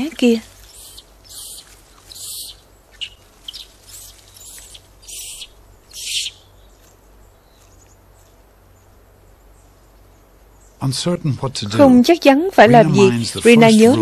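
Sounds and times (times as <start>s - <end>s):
dry leaves rustling: 0.0s - 8.5s.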